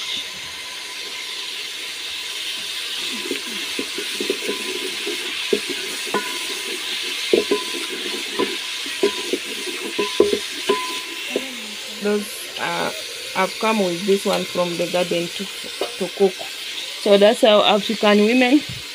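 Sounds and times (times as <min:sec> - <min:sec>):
onions sizzling in a pot: 0:00.0 - 0:18.9
wooden spoon scraping a pot: 0:02.9 - 0:16.8.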